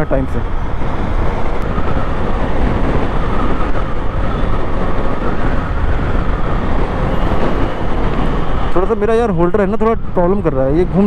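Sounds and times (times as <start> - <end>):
wind noise: 0.0 - 11.0.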